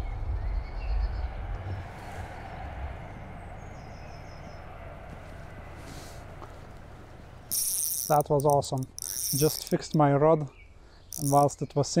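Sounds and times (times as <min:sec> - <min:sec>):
low outdoor rumble: 0:00.0 - 0:07.5.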